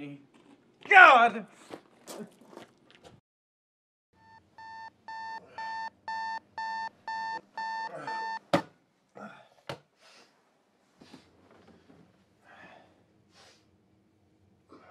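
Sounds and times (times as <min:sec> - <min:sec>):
alarm clock beeping: 0:04.2 - 0:08.5.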